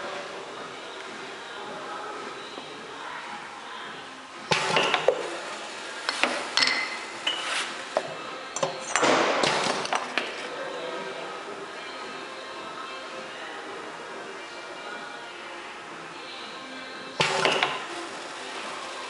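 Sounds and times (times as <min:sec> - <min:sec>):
glass bottles clinking: 0:06.5 - 0:07.5.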